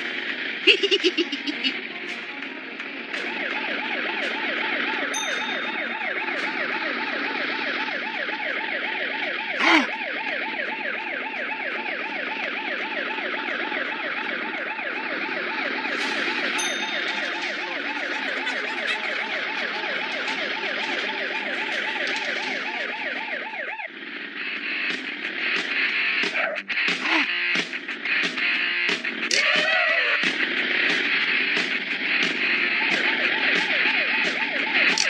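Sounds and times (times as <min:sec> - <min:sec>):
cartoon police siren warble: 0:00.1 - 0:01.8, 0:03.3 - 0:25.0, 0:28.5 - 0:31.4, 0:32.3 - 0:35.0.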